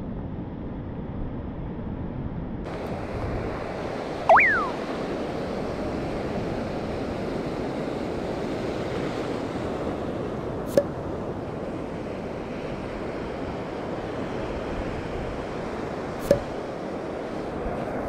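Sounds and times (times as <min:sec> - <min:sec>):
surf washing over shallows: 0:02.7 - 0:18.0
wind buffeting microphone: 0:02.7 - 0:18.0
sliding whistle-like tone: 0:04.3 - 0:04.8.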